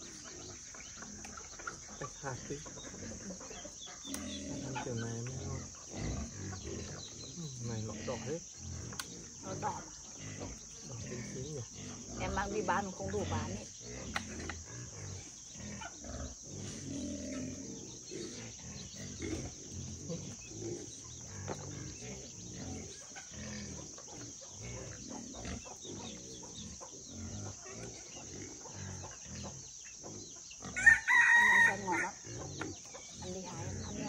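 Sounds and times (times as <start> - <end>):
chicken clucking: 0.0 - 7.2, 18.8 - 34.0
high insect drone: 0.0 - 34.0.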